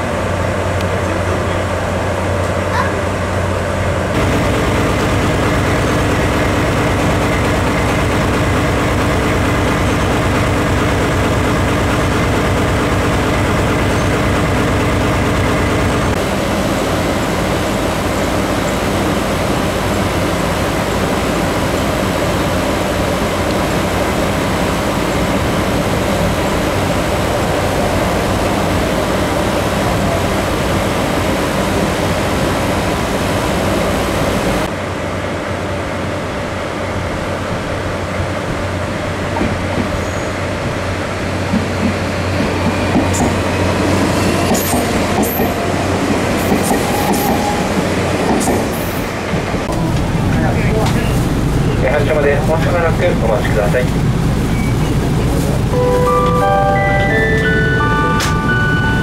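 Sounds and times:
locomotive diesel engine droning: 0:00.0 - 0:39.3, 0:40.1 - 0:59.0.

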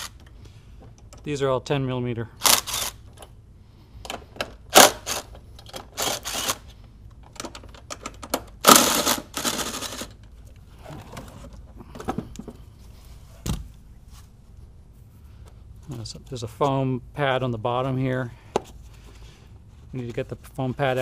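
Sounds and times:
impact driver rattling bursts: 0:00.0 - 0:00.2, 0:02.4 - 0:03.1, 0:04.6 - 0:06.7, 0:08.5 - 0:10.2.

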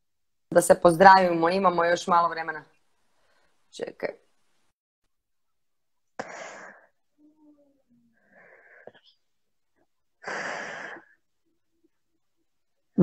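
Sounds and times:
woman breathy exhalations: 0:06.2 - 0:07.0, 0:10.2 - 0:11.2.

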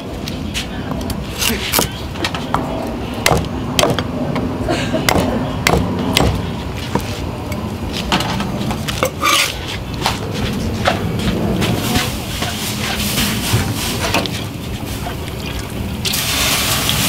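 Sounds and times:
cleaver chopping on wooden block: 0:03.2 - 0:04.0, 0:05.1 - 0:07.0.

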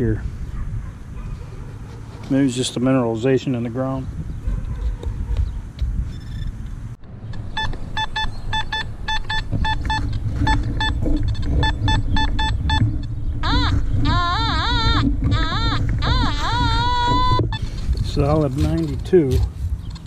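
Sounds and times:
low rumble: 0:04.1 - 0:19.9
metal detector beeps: 0:07.4 - 0:18.8.

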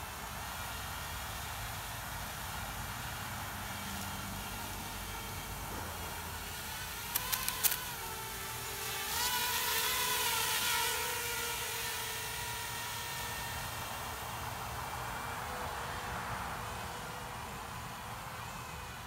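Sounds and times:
quadcopter motors whining: 0:00.0 - 0:15.2
sharp clicks: 0:07.1 - 0:07.9.

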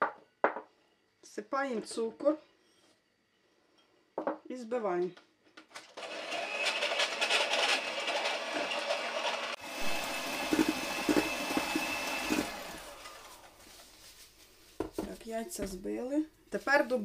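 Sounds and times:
electric hand mixer whine: 0:06.0 - 0:13.6.

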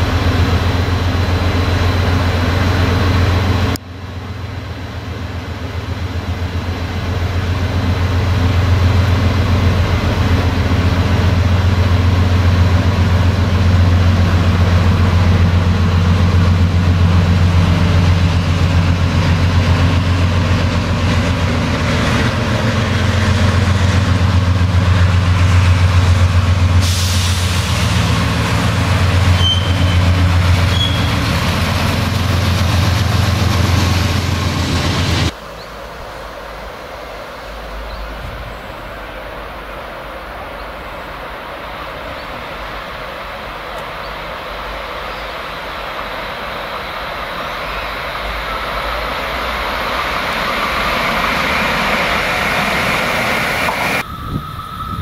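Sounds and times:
diesel locomotive engine drone: 0:00.0 - 0:55.0
high-pitched wheel squeals: 0:29.3 - 0:31.3.

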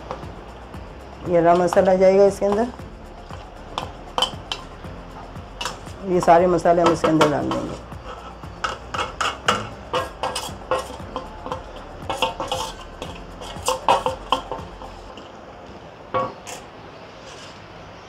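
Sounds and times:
metal spoon clinking on pot: 0:08.6 - 0:15.3.

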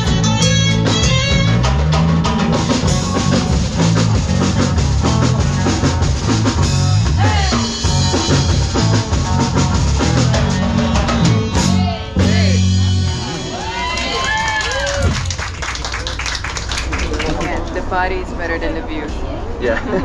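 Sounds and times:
live band playing latin dance music: 0:00.0 - 0:13.6.

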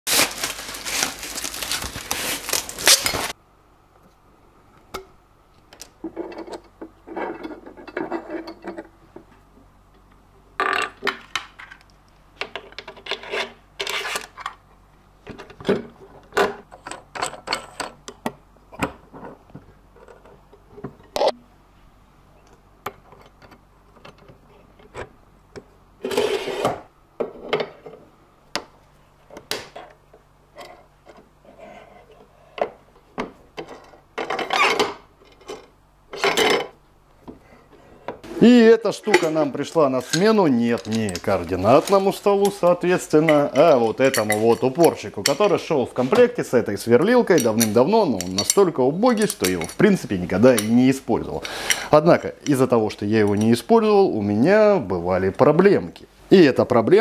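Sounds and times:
dense rustling noise: 0:00.1 - 0:03.4, 0:39.6 - 0:43.0
metal parts clicking and clinking: 0:40.1 - 0:42.6, 0:44.0 - 0:45.5, 0:47.2 - 0:49.9.

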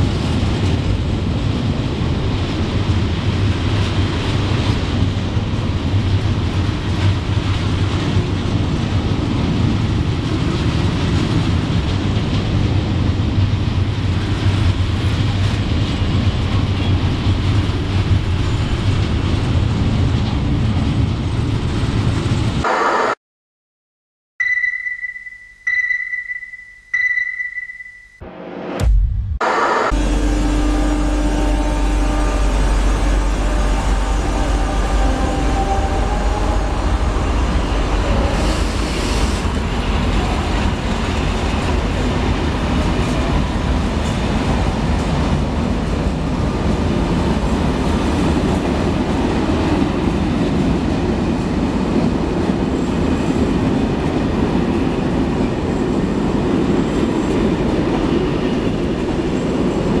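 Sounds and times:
train wheels rumbling on rails: 0:00.0 - 0:22.6, 0:30.0 - 1:00.0.

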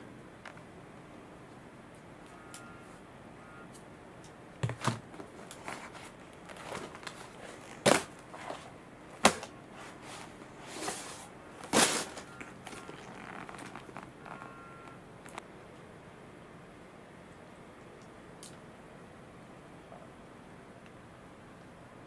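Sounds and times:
fabric and vinyl rustles: 0:04.6 - 0:15.4.

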